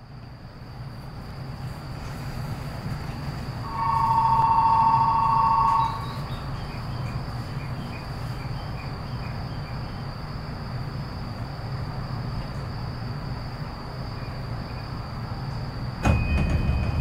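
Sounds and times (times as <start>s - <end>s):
crickets chirping: 0.0s - 17.0s
low hum of a train: 0.0s - 17.0s
loud two-tone signal: 3.6s - 6.5s.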